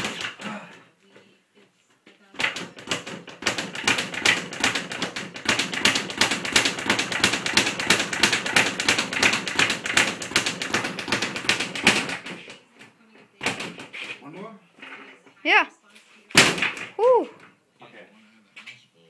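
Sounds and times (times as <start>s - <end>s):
speed bag rattling hits: 0.0s - 0.5s, 2.4s - 12.5s.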